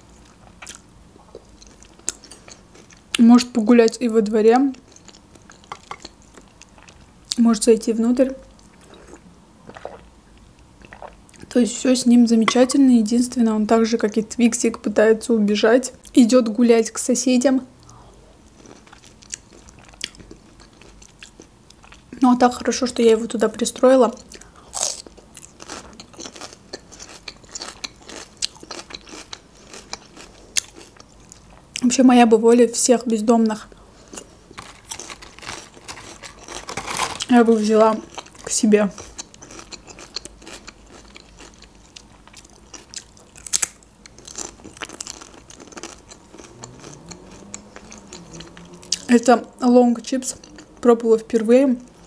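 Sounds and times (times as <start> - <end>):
crunchy chewing: 24.3 - 31.6, 33.9 - 49.1.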